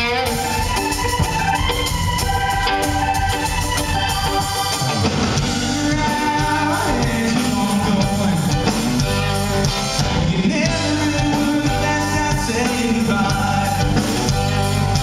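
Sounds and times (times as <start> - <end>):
electric guitars: 0.0 - 15.0
keyboard: 0.0 - 15.0.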